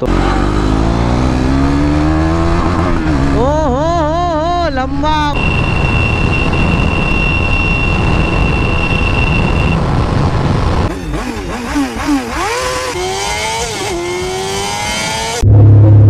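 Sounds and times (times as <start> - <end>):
motorcycle engine revving: 0.0 - 16.0
motorcycle rushing noise: 0.0 - 16.0
steady high whine: 4.0 - 10.9.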